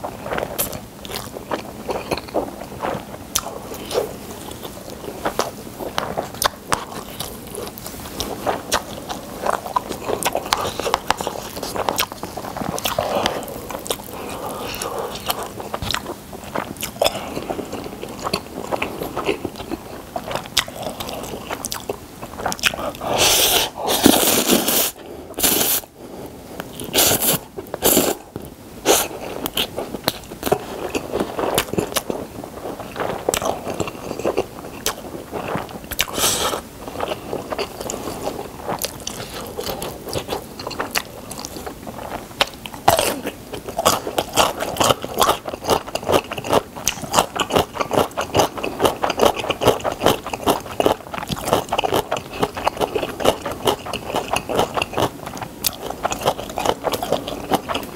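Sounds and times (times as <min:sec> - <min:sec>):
wet chewing and mouth smacks: 0:00.2 - 0:25.8, 0:26.6 - 0:57.9
slurping noodles: 0:22.4 - 0:25.9, 0:26.8 - 0:34.5, 0:35.2 - 0:40.8.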